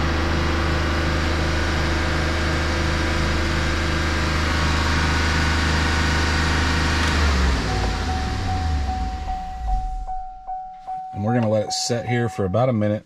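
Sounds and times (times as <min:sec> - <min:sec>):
engine running at high idle: 0:00.0 - 0:10.2.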